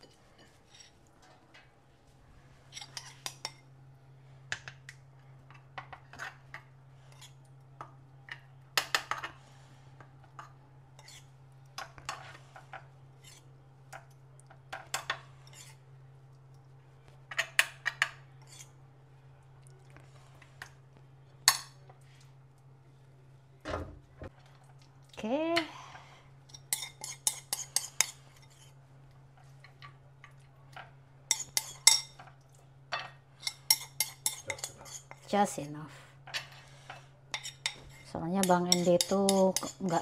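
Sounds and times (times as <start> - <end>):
utensils clinking against dishes: 31.3 - 32.4, 33.0 - 35.3, 37.4 - 40.0.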